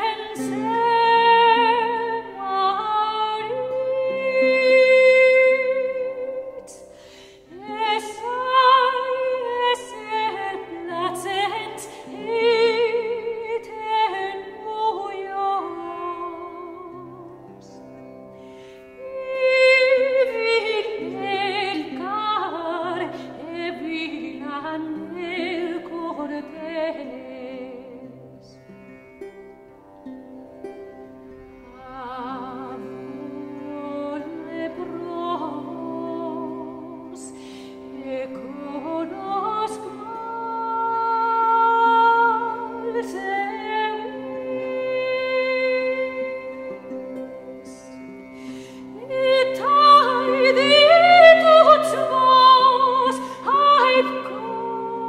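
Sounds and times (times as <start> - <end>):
operatic voice singing with vibrato: 49.0 - 55.0.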